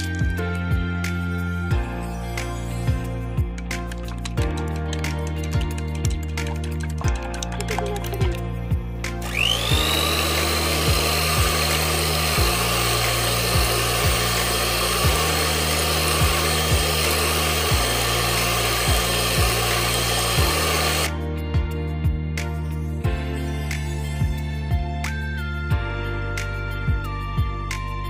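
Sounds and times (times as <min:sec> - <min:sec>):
electric hand mixer whining: 0:00.0 - 0:04.6, 0:09.1 - 0:21.2
background music: 0:00.0 - 0:28.0.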